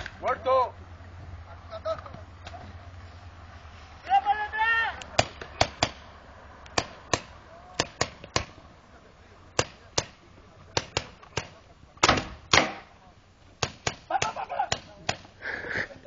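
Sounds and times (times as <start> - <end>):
paintball markers firing: 9.6 - 12.9.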